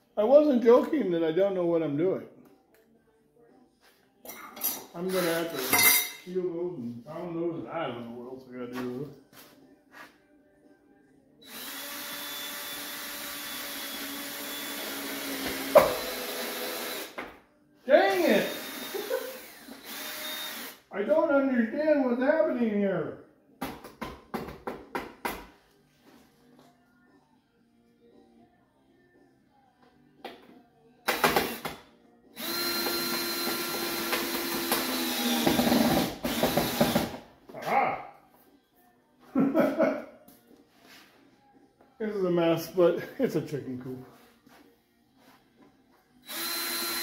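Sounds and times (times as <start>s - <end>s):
power tool motor humming: 11.5s - 17.2s, 18.4s - 20.8s, 32.4s - 37.2s, 46.2s - 47.0s.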